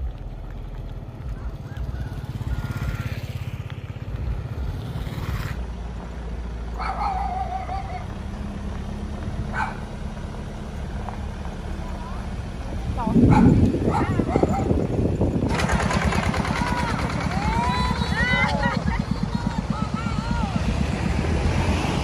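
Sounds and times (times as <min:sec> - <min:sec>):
motorcycle engines running: 0:00.0 - 0:22.0
dog yelping: 0:06.8 - 0:08.2, 0:09.5 - 0:09.9, 0:13.2 - 0:14.8.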